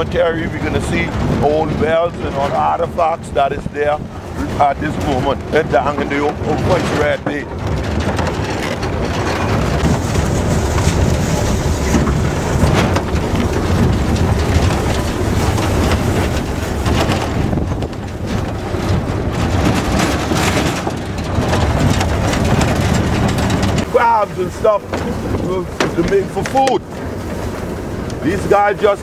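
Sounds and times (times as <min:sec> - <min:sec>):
truck body rattle: 0:00.0 - 0:29.0
truck engine and road noise: 0:00.0 - 0:29.0
wind on microphone: 0:00.0 - 0:29.0.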